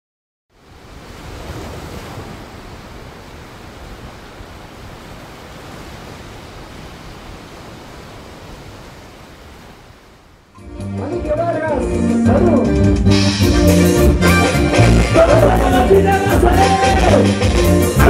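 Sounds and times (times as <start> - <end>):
rushing wind-like noise: 0.5 - 10.6.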